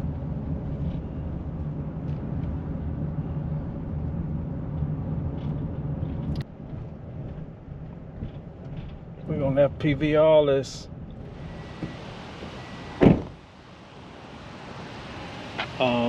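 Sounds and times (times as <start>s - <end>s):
car cabin road rumble: 0.0s - 16.0s.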